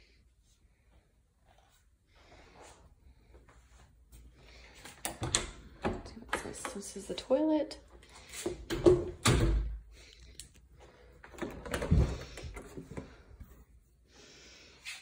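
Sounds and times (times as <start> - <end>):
door clicks and knocks: 8.7 - 9.7.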